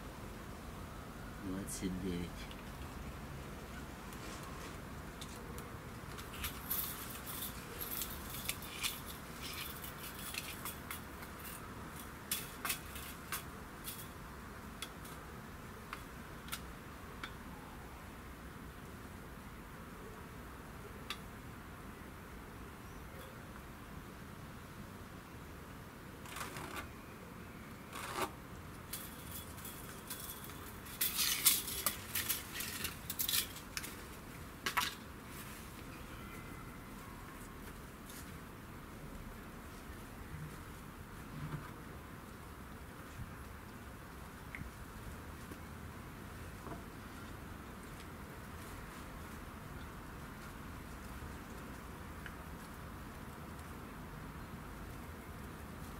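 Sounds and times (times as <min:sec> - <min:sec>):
tape measure clicking and rattling: 0:06.2 - 0:14.2, 0:28.9 - 0:34.0.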